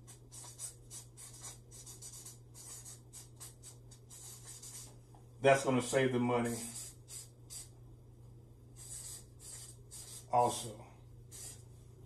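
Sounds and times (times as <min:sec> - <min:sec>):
marker writing on paper: 0:00.0 - 0:05.0, 0:06.5 - 0:07.7, 0:08.8 - 0:10.3, 0:11.3 - 0:11.6.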